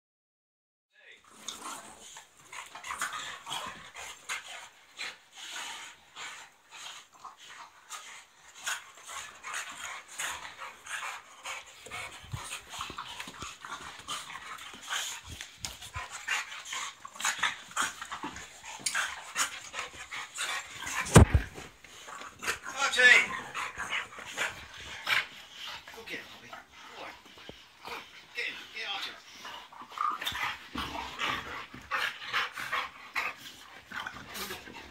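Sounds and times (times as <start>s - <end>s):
dogs panting: 1.3s - 34.9s
loud thump: 21.0s - 21.6s.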